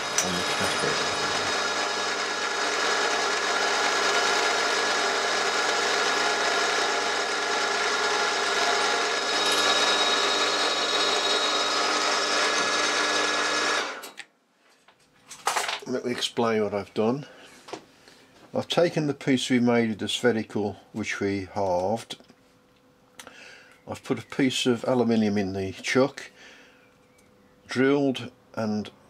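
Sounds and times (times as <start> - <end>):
milling machine hum and whine: 0.0 - 14.2.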